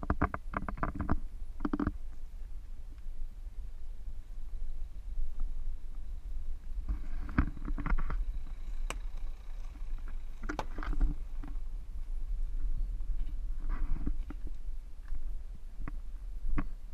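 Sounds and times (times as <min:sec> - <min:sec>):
twigs crunching under tyres: 0:06.8 - 0:12.2.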